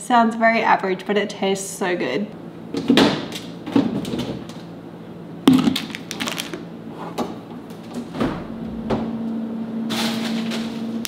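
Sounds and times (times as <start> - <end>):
low steady hum: 0.0 - 11.0
knocks and clicks of fridge items: 2.7 - 4.6.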